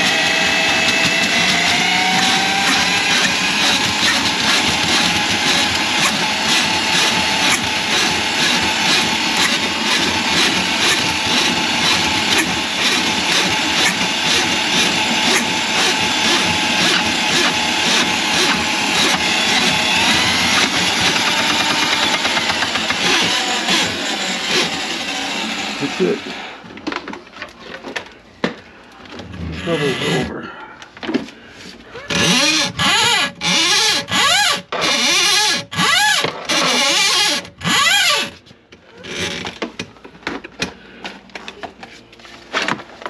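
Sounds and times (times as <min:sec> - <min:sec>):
drain cleaning machine motor: 0:00.0 - 0:26.6.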